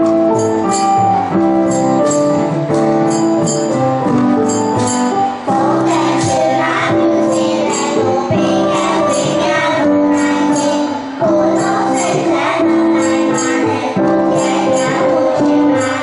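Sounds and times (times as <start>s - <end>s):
jingling tambourine-like percussion: 0.0s - 16.0s
music with slow steady beat: 0.0s - 16.0s
children singing together: 5.4s - 16.0s.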